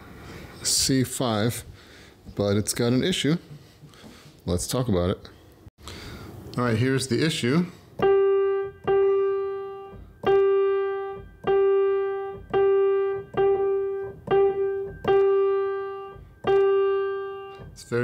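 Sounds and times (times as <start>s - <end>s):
piano note struck repeatedly: 8.0s - 18.0s.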